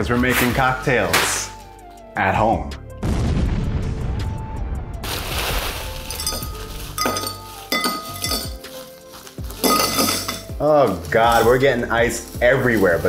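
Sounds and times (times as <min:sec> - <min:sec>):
background music: 0:00.0 - 0:13.0
ice cubes clinking into glass: 0:06.0 - 0:08.8, 0:09.6 - 0:10.5.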